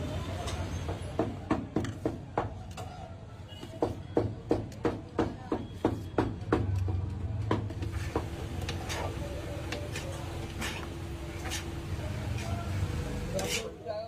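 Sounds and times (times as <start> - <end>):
chicken scraped on griddle: 9.9 - 12.5, 13.4 - 13.8.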